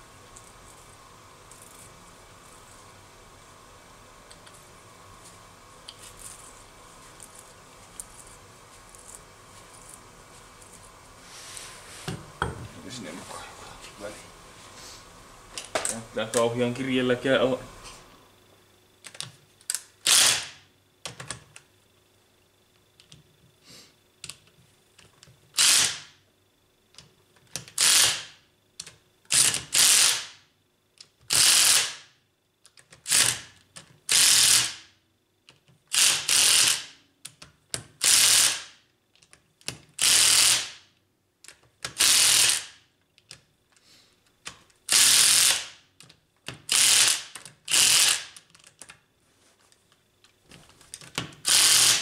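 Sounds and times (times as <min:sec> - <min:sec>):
ratchet wrench clicking: 0:40.0 - 0:40.7, 0:42.0 - 0:42.7, 0:46.7 - 0:48.4, 0:51.5 - 0:52.0.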